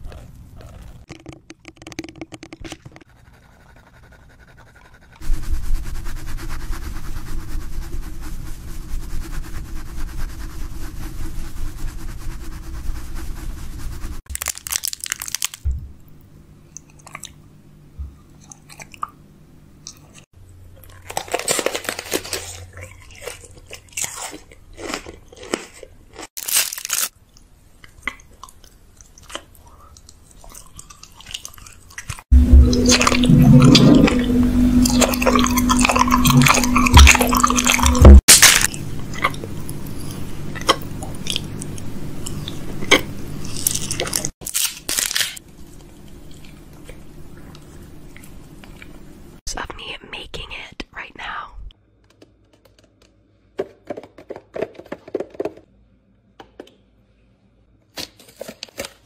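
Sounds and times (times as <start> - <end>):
crunchy food chewing: 0.0 - 1.5, 20.8 - 32.2, 36.2 - 48.9
loud crisp bites: 14.3 - 15.7, 26.3 - 27.1, 36.5 - 38.8.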